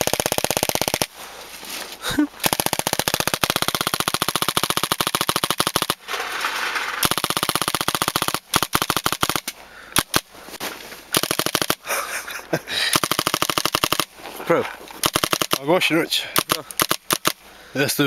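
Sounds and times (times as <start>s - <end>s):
paintball marker rapid firing: 0.0s - 1.1s, 2.4s - 6.0s, 7.0s - 10.3s, 11.1s - 11.9s, 12.9s - 14.1s, 15.0s - 15.7s, 16.4s - 17.4s.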